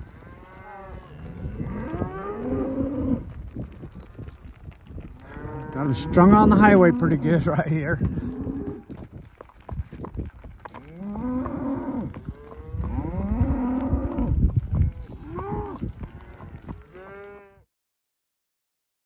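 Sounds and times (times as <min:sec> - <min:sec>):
cows mooing: 0:00.0 - 0:03.3, 0:05.1 - 0:08.9, 0:10.8 - 0:17.7.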